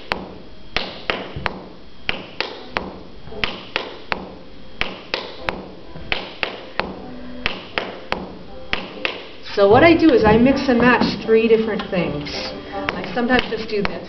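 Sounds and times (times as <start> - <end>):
shoes tapping on wooden floor: 1.1 - 14.0.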